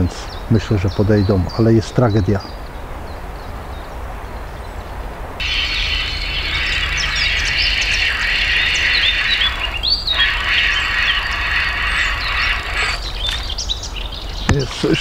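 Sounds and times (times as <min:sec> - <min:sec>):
low steady rumble: 0:05.1 - 0:14.5
birds chirping and whistling: 0:05.4 - 0:15.0.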